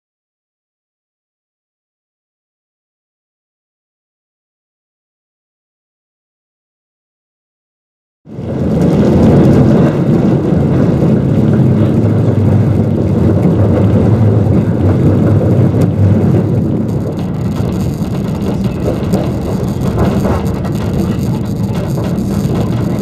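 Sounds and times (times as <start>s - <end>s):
tram wheels and motor rumbling: 8.3s - 23.0s.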